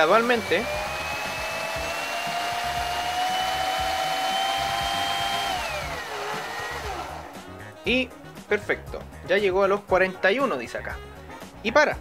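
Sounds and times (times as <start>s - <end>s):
small electric motor whine: 0.0s - 7.4s.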